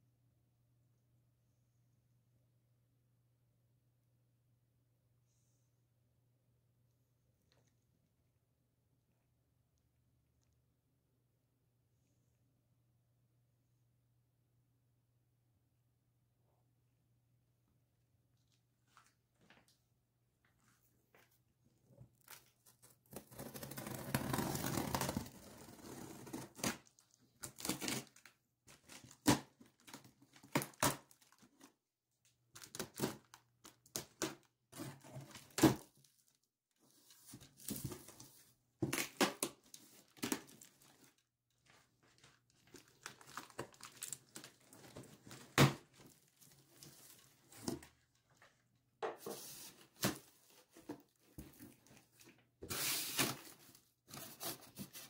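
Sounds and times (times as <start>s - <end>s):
packing tape tearing: 23.2s - 26.9s.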